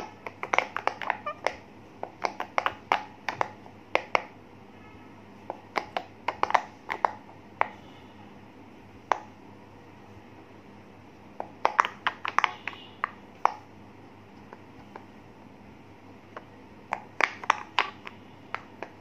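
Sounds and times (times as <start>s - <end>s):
fidget toy bubbles popping: 0.0s - 4.3s, 5.5s - 7.2s, 11.4s - 13.6s, 16.4s - 19.0s.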